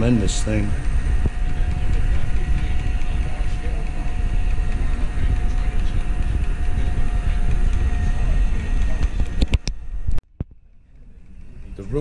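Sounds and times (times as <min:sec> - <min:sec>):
robot vacuum whirring: 0:00.0 - 0:09.7.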